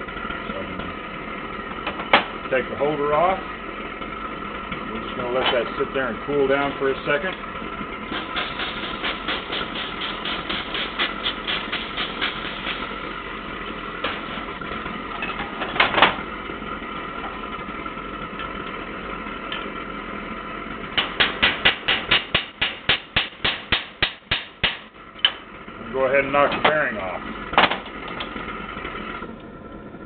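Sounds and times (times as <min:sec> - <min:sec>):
steady hum: 0:00.0 - 0:30.0
spray bottle squirting: 0:08.1 - 0:12.8.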